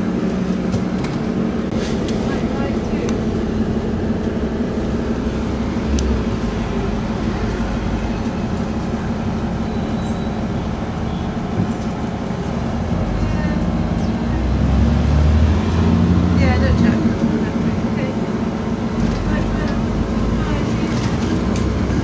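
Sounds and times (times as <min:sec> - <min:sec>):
bus engine and road rumble: 0:00.0 - 0:22.0.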